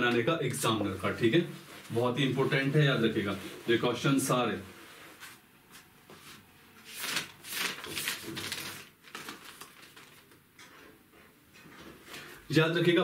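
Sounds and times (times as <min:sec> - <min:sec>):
notebook pages rustling: 0:05.0 - 0:10.4.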